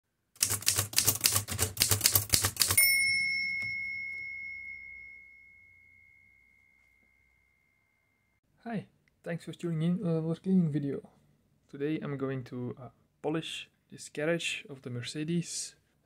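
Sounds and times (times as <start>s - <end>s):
typewriter key strikes: 0.4s - 2.8s
typewriter bell ding: 2.4s - 7.1s.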